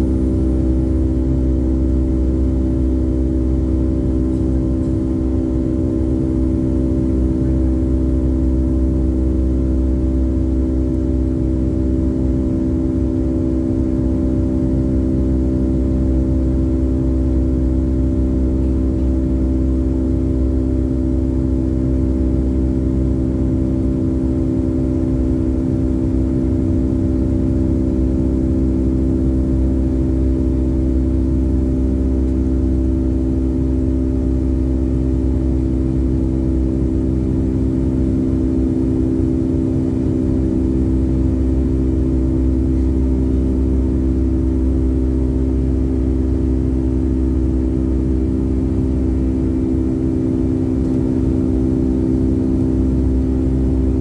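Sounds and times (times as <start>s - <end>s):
jet engine drone in cabin: 0.0s - 54.0s.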